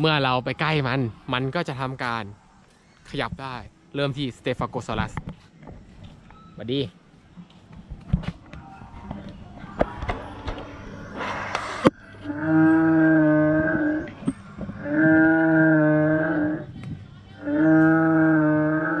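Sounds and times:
dinosaur call through loudspeaker: 12.2 - 14.1, 14.8 - 16.7, 17.4 - 19.0.

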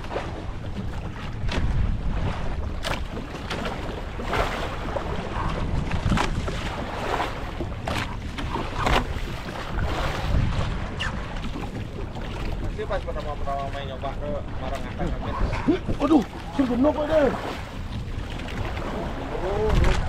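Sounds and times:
waves slapping against hull: 0.0 - 20.0.

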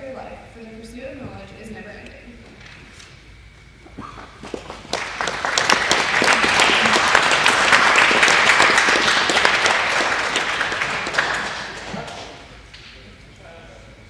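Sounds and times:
audience applauding: 4.4 - 12.6.

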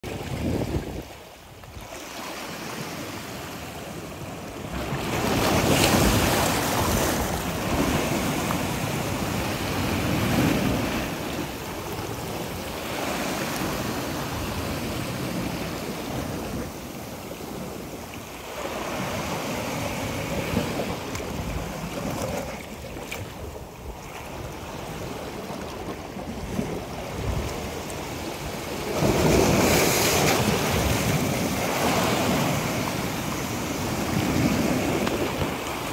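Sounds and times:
waves washing over rocks: 0.1 - 35.9.

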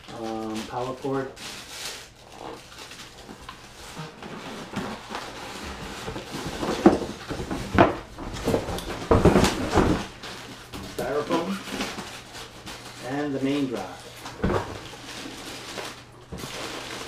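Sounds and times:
cardboard and foam rubbing: 1.4 - 10.3.

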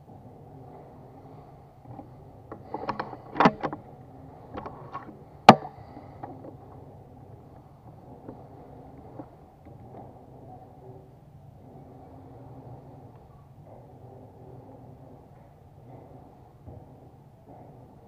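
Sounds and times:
air rifle action clicks: 2.5 - 3.8.

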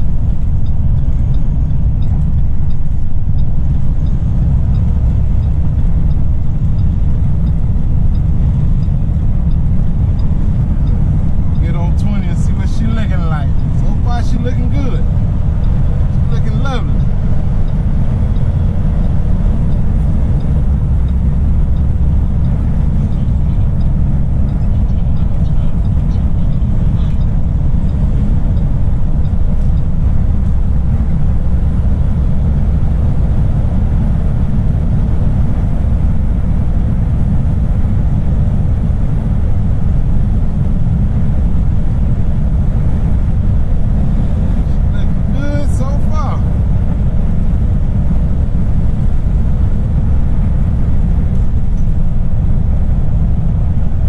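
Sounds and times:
road noise: 0.0 - 54.0
truck engine rumble: 0.0 - 54.0.

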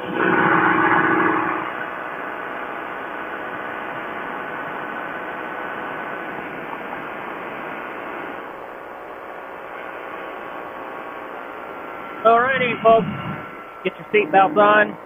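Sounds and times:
ultralight engine running: 0.0 - 15.0
wind rushing: 12.2 - 13.8.

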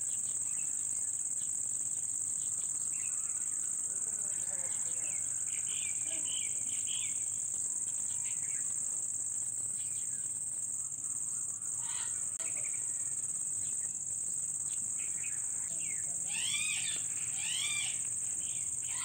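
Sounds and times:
high-pitched insect chorus: 0.0 - 19.0
bird chirps: 14.6 - 19.0.

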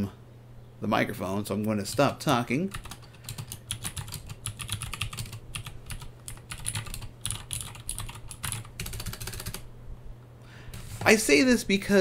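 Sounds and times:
fast typing on mechanical keyboard: 1.9 - 9.7.

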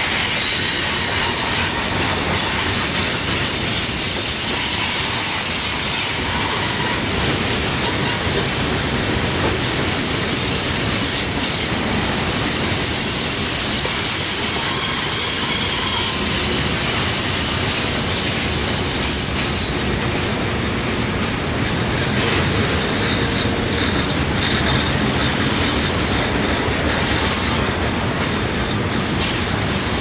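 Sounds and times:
train wheels rumbling and rattling: 0.0 - 30.0
faint wheel flange squeal: 14.6 - 16.6.

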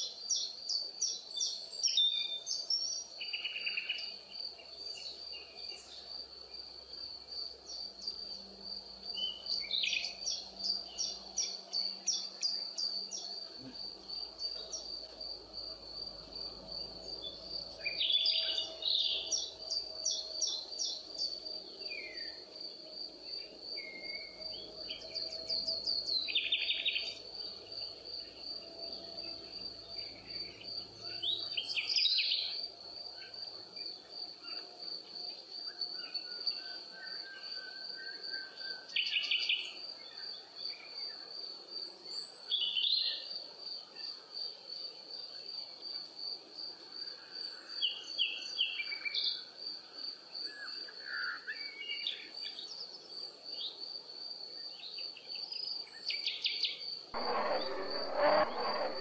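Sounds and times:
insect trilling: 57.2 - 59.0.

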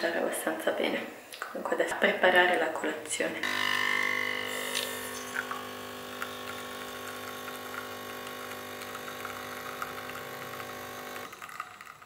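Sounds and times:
espresso machine pump running: 3.4 - 12.0.

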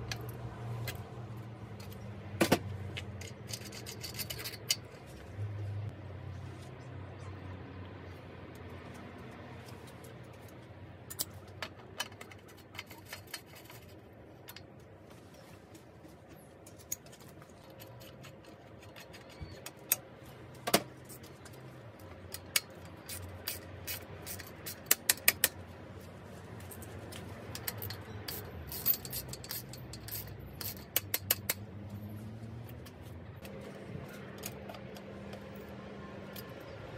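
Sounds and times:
metallic clicks of hand tools: 21.1 - 25.6, 27.5 - 31.7.

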